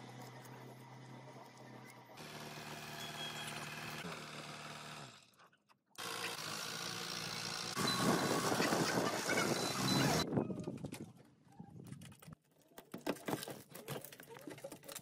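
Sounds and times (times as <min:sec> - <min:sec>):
forklift engine running: 0:06.0 - 0:10.2.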